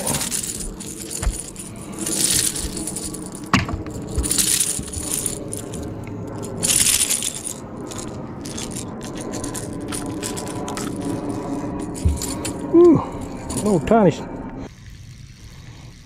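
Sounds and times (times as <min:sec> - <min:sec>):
fishing lure rattling: 0:00.0 - 0:13.8, 0:14.7 - 0:16.0.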